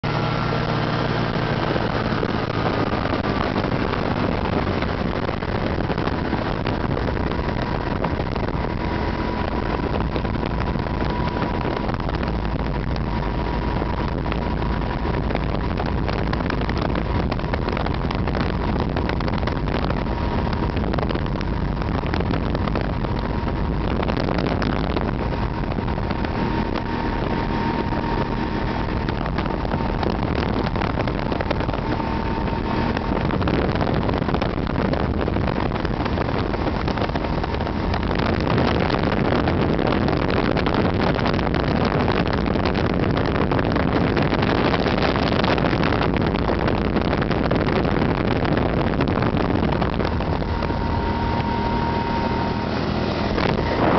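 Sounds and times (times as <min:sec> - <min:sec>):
wind rush: 0:00.0 - 0:53.9
thin steady whine: 0:44.1 - 0:53.9
aircraft engine drone: 0:48.8 - 0:53.9.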